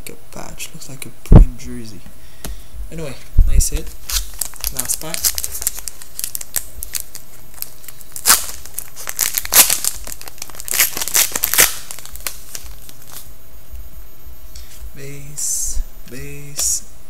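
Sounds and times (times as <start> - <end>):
steady low hum: 0.0 - 17.0
shiny wrapper crinkling: 3.9 - 13.3.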